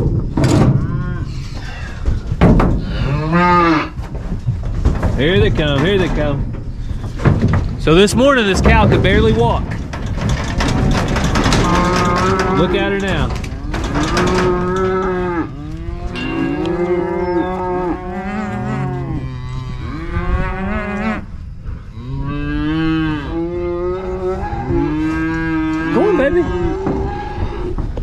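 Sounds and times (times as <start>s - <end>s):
cows and calves mooing: 0.6s - 1.9s, 2.8s - 4.0s, 10.0s - 28.0s.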